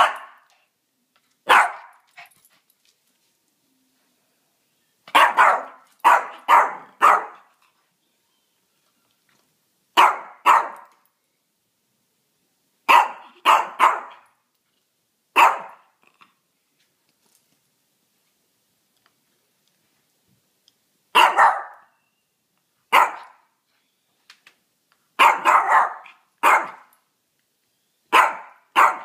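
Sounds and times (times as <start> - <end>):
small dog barking: 0.0 - 0.5, 1.4 - 2.1, 5.1 - 7.5, 10.0 - 10.9, 12.9 - 14.2, 15.4 - 15.9, 21.1 - 21.9, 22.9 - 23.5, 25.2 - 26.9, 28.1 - 29.0.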